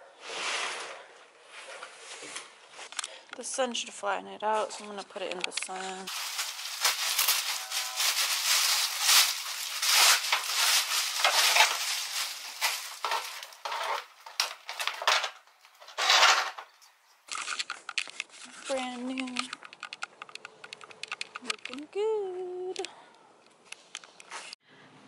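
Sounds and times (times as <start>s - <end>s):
plastic wrap crinkling: 5.4s - 21.8s.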